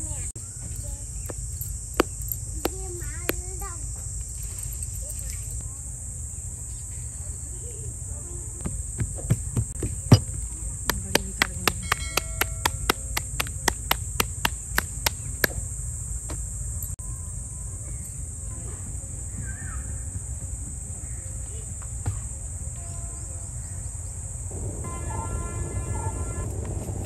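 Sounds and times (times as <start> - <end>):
dough slapped between palms: 10.9 - 15.6.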